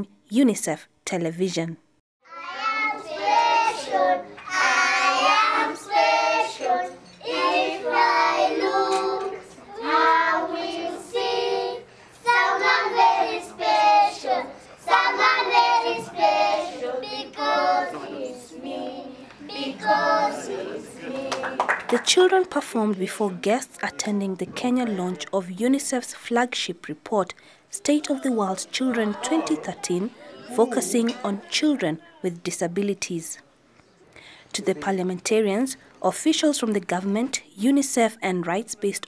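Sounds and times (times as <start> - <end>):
young children singing: 2.3 - 21.7.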